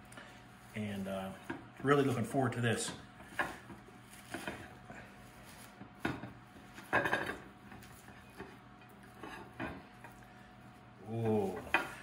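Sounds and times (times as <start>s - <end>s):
cloth rustling on meat: 0.1s - 6.9s.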